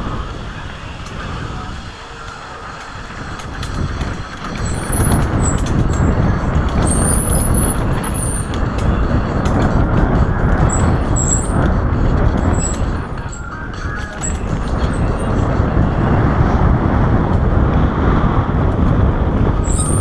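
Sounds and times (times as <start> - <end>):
bike rattling and clicking: 0.0 - 20.0
wind on microphone: 0.0 - 20.0
high squeals: 4.6 - 6.1, 10.6 - 11.8, 12.4 - 15.4, 19.6 - 20.0.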